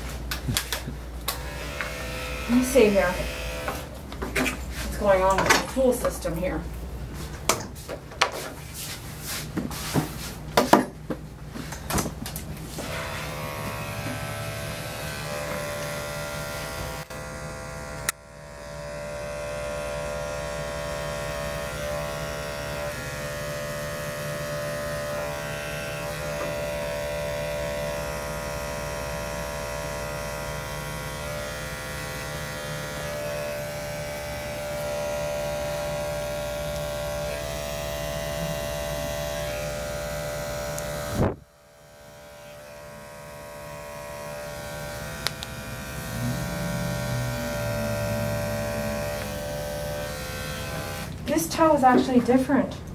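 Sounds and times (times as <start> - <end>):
electric clippers humming: 0.0 - 7.6, 11.6 - 52.1.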